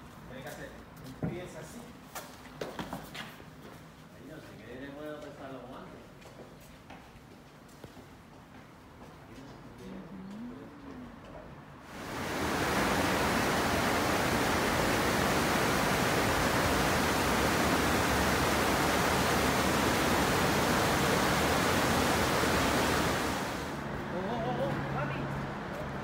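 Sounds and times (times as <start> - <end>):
river rushing over rocks: 11.9 - 23.8.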